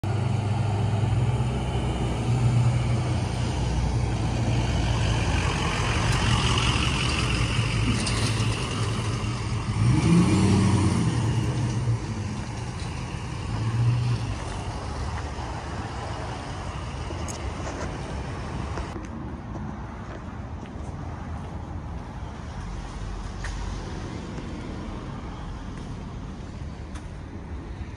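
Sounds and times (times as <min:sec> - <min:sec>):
pickup truck engine humming: 0:00.0 - 0:19.0.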